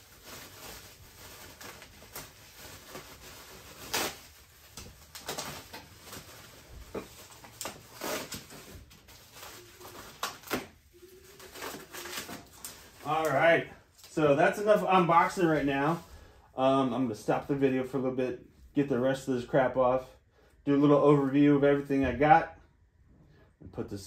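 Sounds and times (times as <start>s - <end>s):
plastic packaging rustling: 0.0s - 16.3s.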